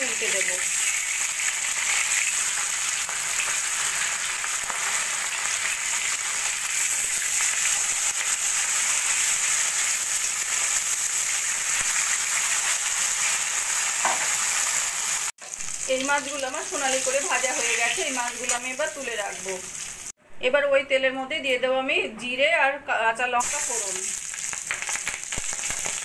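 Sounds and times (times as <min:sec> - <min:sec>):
fish sizzling in hot oil: 0:00.0 - 0:20.1, 0:23.4 - 0:26.0.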